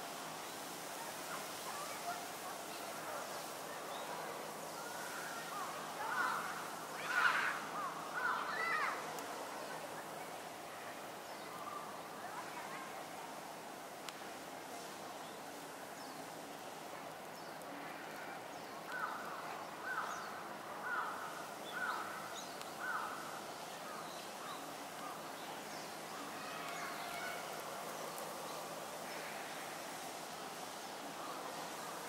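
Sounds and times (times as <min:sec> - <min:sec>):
outdoor background noise: 0:00.0 - 0:32.0
small birds chirping: 0:17.1 - 0:31.8.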